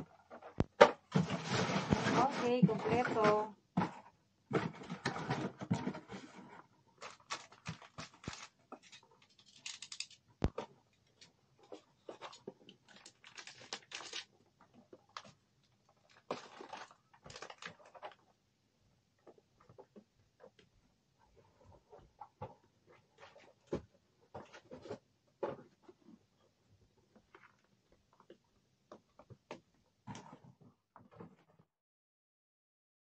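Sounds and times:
packaging rustling and crinkling: 4.5 - 18.3.

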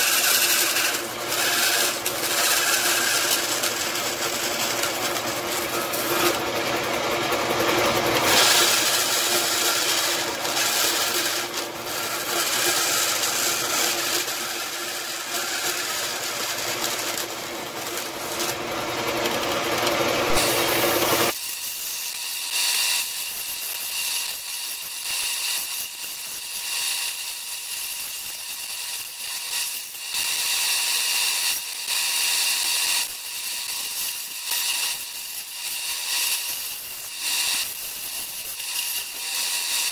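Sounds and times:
bandsaw cutting metal: 0.0 - 39.9.

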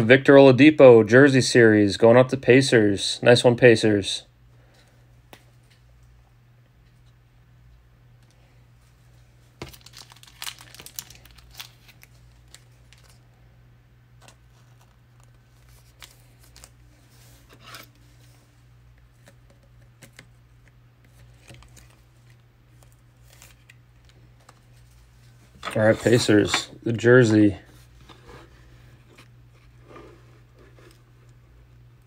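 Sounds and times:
foil wrapper tearing and crinkling: 9.6 - 13.2.

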